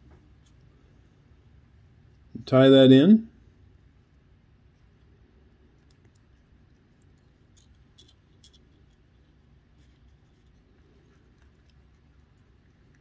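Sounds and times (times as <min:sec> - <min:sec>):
low room hum: 0:00.0 - 0:13.0.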